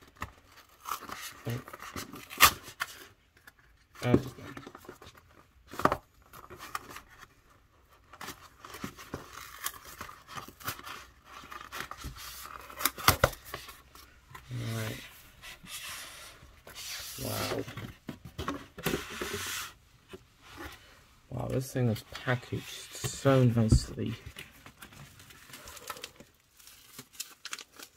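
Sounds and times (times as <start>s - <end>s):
cardboard rubbing and scraping: 10.9s - 21.0s
bubble wrap rustling: 22.2s - 27.9s.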